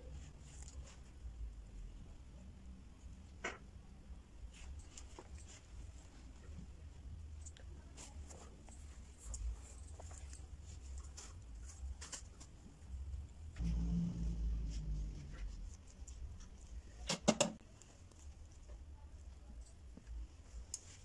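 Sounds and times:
low steady hum: 0:00.0 - 0:17.0
low rumble: 0:13.6 - 0:15.8.

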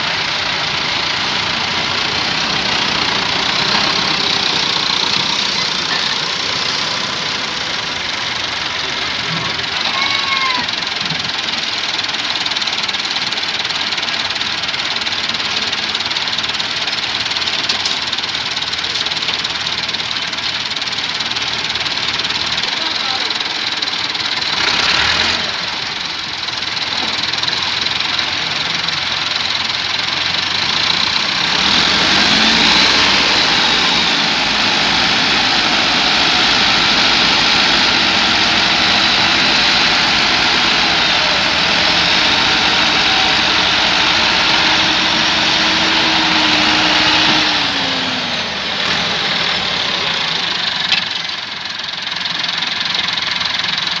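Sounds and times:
tractor diesel engines under load: 0:00.0 - 0:54.0.

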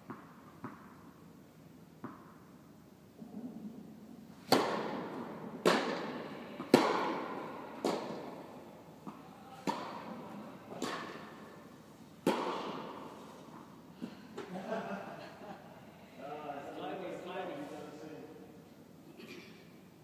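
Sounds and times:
tennis ball pops echoing: 0:04.5 - 0:08.4, 0:09.0 - 0:11.4, 0:12.2 - 0:13.0.

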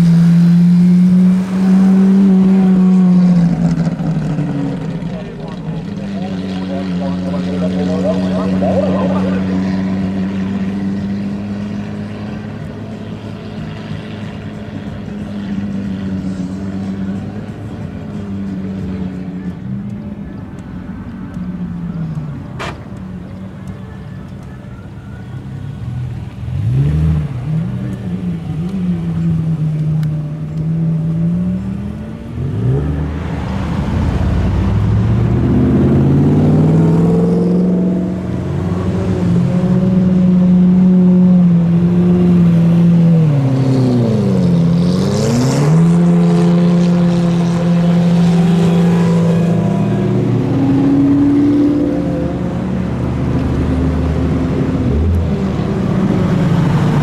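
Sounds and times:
sports car engines revving: 0:00.0 - 0:57.0.

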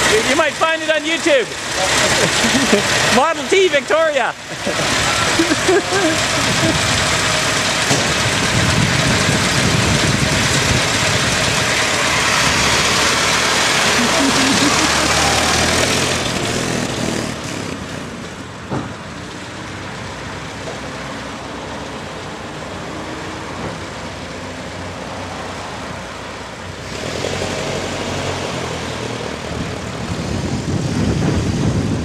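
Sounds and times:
old car engine running: 0:00.0 - 0:18.5
road traffic noise: 0:00.0 - 0:32.0.

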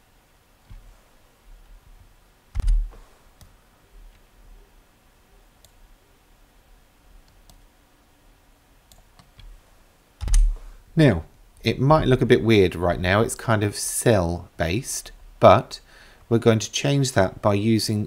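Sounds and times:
mouse and keyboard clicks: 0:02.6 - 0:03.6, 0:10.2 - 0:10.6.

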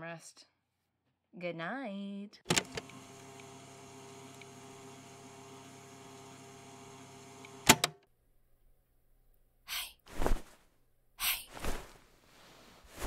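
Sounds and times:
hissy breath-like noises: 0:09.7 - 0:10.0.

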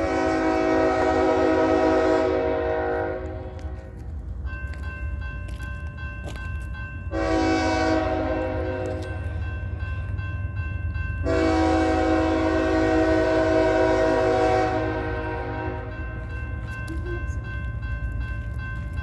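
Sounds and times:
locomotive air horn blasts: 0:00.0 - 0:04.0, 0:07.1 - 0:09.2, 0:11.2 - 0:16.0.

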